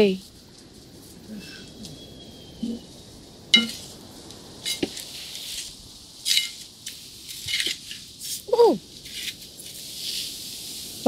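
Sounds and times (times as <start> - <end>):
wooden spatula clinking on metal pan: 3.6 - 3.8.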